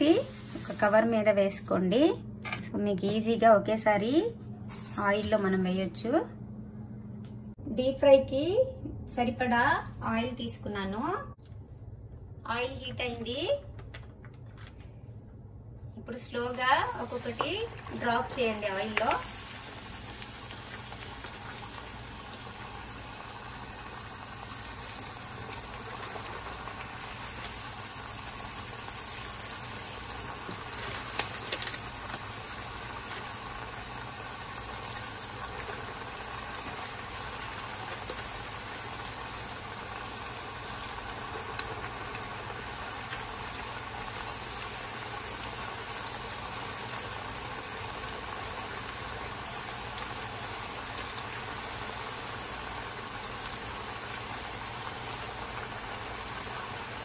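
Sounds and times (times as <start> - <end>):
food sizzling in hot oil: 0.0 - 1.8, 16.3 - 57.0.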